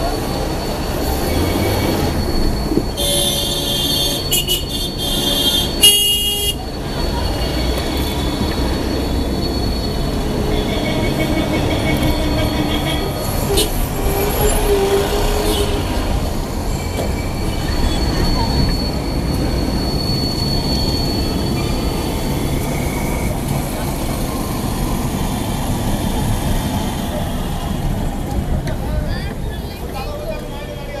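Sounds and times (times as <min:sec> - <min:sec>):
traffic engines running: 0:00.0 - 0:31.0
car horn: 0:02.9 - 0:06.7, 0:10.4 - 0:16.0.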